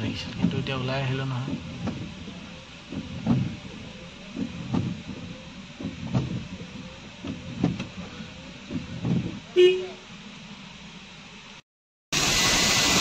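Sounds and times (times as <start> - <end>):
car suspension thudding: 0.0 - 10.0
engine and tyre rumble: 0.0 - 11.6.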